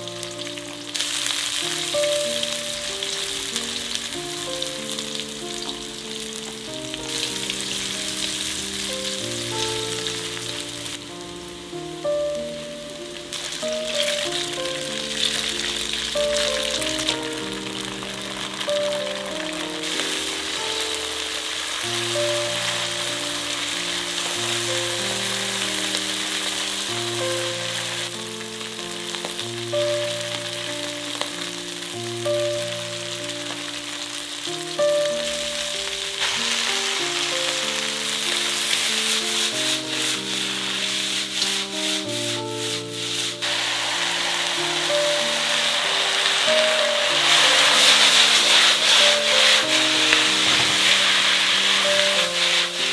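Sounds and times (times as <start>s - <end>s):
slow low background melody: 0.0s - 52.9s
vegetables sizzling in a wok: 0.0s - 52.9s
wok stirring clatters: 36.2s - 52.9s.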